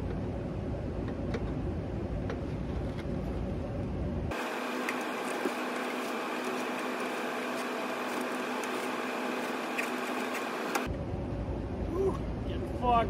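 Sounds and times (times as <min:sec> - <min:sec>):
hvac equipment humming: 0:00.0 - 0:13.0.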